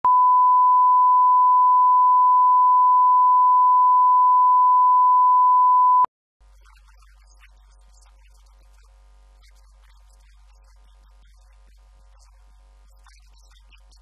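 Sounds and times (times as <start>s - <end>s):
pure reference tone beep: 0.1s - 6.1s.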